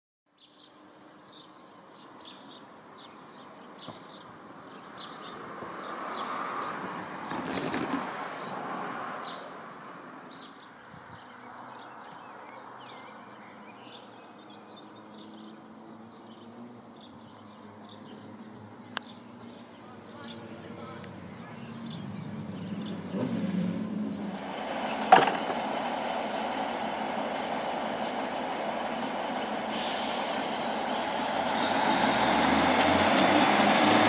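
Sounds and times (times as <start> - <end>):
small birds chirping: 0.3 - 23.4.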